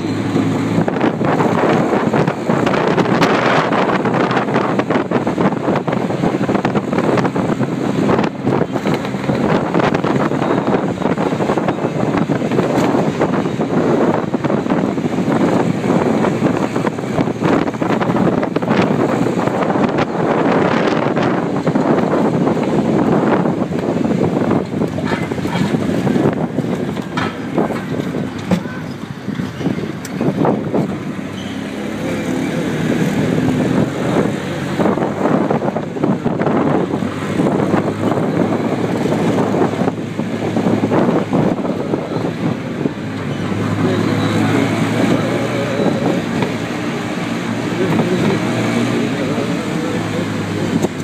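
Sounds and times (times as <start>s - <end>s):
vehicle and road noise: 0.0s - 51.0s
wind buffeting microphone: 0.0s - 51.0s.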